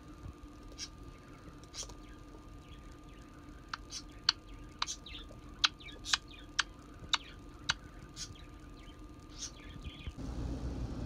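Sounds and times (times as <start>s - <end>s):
parrot chirping: 9.3s - 10.1s.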